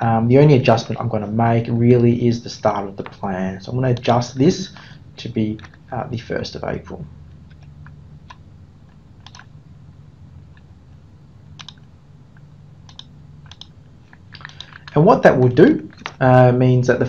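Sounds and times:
faint low hum: 0.0 - 17.0
computer mouse clicking: 7.4 - 9.5, 11.6 - 16.2.

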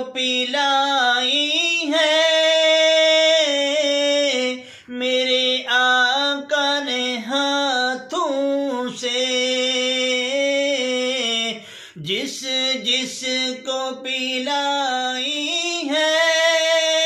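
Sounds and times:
man singing unaccompanied: 0.0 - 17.0
man breathing between phrases: 4.6 - 4.9, 11.6 - 12.0.

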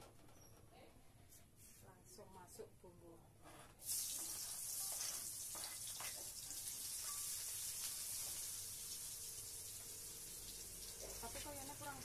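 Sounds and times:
paste sizzling in hot oil: 3.8 - 12.0.

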